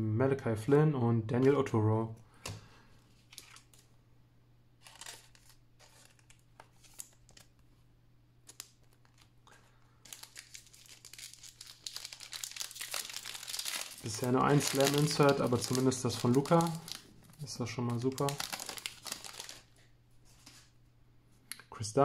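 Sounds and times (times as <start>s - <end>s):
foil card pack crinkling and tearing: 4.8s - 7.5s, 8.4s - 19.8s.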